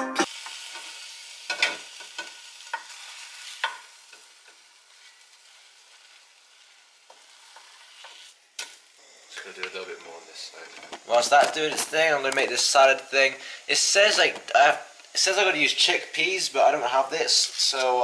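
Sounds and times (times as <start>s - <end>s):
steak sizzling in a frying pan: 0.3s - 10.0s
spatula scraping and knocking pan: 1.5s - 8.8s.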